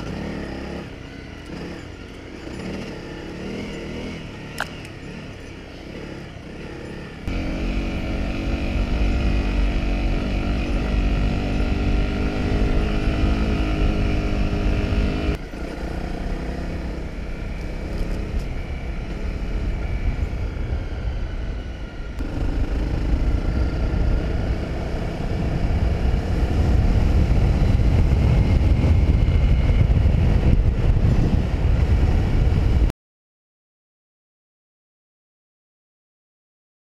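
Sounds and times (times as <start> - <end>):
motorcycle engine running: 0.0 - 32.9
heavy low rumble: 18.4 - 32.9.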